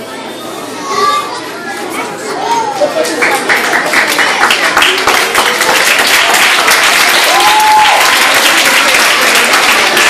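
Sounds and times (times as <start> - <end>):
audience applauding: 3.0 - 10.0.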